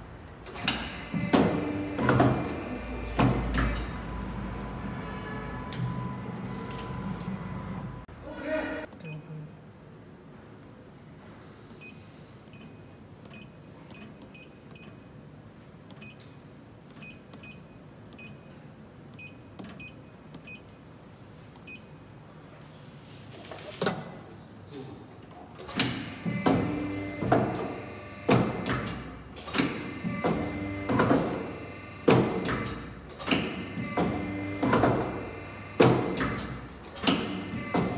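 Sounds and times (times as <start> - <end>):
short high beeps: 9.0 - 9.6.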